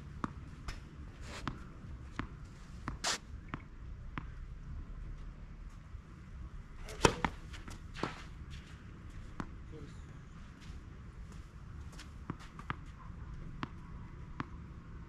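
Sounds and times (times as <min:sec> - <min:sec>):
tennis ball bouncing on clay: 0:01.4 - 0:04.4, 0:06.8 - 0:08.2, 0:11.9 - 0:14.7
racket striking tennis ball: 0:06.8 - 0:08.3.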